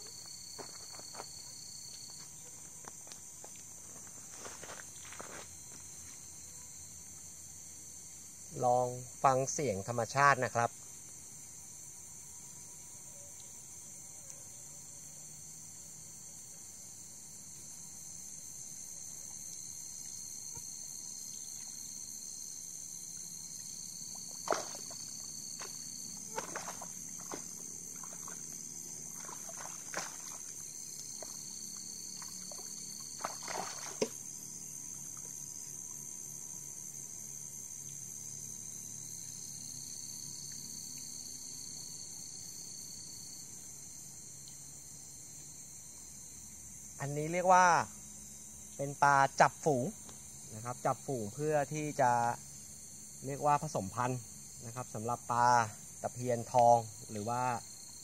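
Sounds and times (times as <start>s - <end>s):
crickets chirring: 0.0s - 58.0s
high insect trill: 0.0s - 58.0s
fish splashing at water surface: 24.2s - 31.4s, 32.2s - 34.2s.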